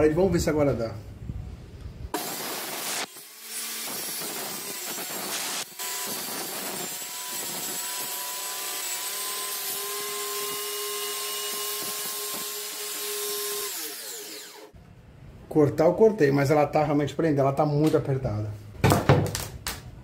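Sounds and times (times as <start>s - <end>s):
circular saw cutting hardboard: 2.2s - 14.8s.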